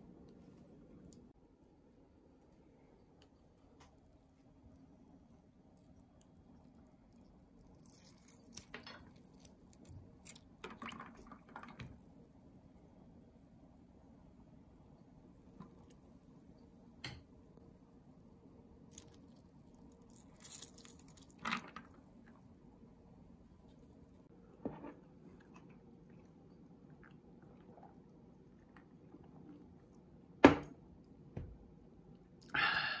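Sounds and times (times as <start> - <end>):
lime squishing and dripping: 5.0 - 11.4, 18.8 - 21.8
ice and soda fizzing in glass: 20.0 - 21.8.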